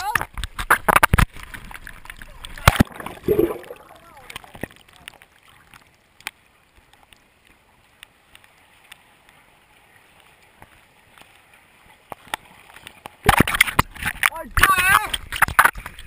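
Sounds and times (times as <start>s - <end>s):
small underwater clicks: 0.0s - 16.0s
water splashing: 0.0s - 16.0s
faint underwater hiss: 2.2s - 4.4s.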